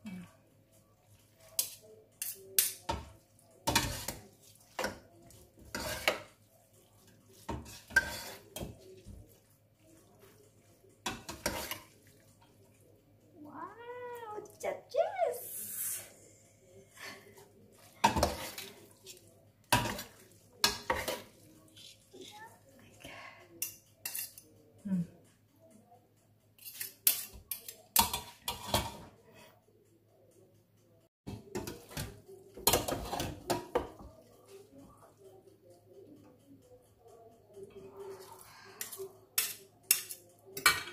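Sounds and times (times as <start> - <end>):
metal spoons clinking on pot: 1.4 - 6.4, 7.3 - 9.2, 11.0 - 12.6, 18.0 - 22.0, 23.6 - 24.5, 26.6 - 29.2, 31.3 - 34.2, 38.1 - 40.9
utensils scraping metal pot: 3.6 - 6.4, 7.4 - 8.7, 11.1 - 11.9.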